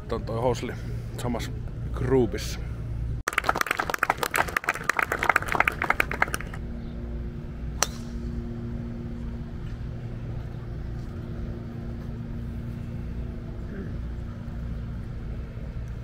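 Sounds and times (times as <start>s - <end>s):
steady low hum: 0.0s - 16.0s
scattered clapping: 3.3s - 6.6s
golf club striking ball: 7.8s - 8.3s.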